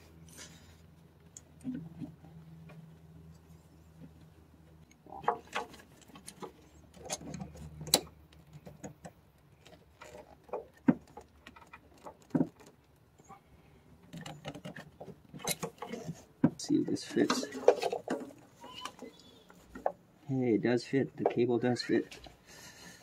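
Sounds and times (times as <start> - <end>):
rubber hose rubbing and creaking: 9.6 - 20.0.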